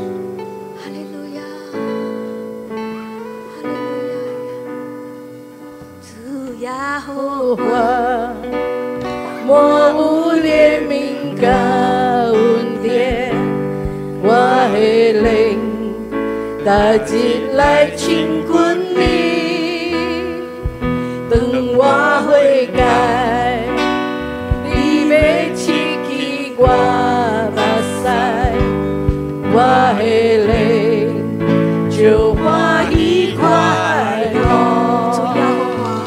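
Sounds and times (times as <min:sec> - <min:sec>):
instrumental accompaniment chords: 0:07.6 - 0:36.0
person singing worship song: 0:09.2 - 0:36.0.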